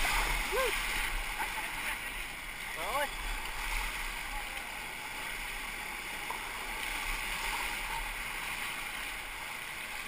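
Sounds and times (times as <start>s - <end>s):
whitewater rapids rushing: 0.0s - 10.0s.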